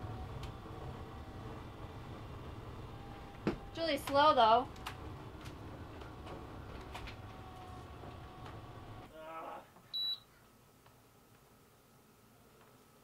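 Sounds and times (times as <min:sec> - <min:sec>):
electric motor droning: 0:04.6 - 0:09.1
short high beep: 0:10.0 - 0:10.2.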